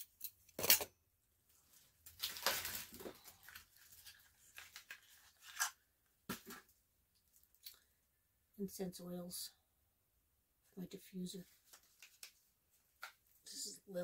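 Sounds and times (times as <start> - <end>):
packaging rustling and tearing: 1.8 - 5.8.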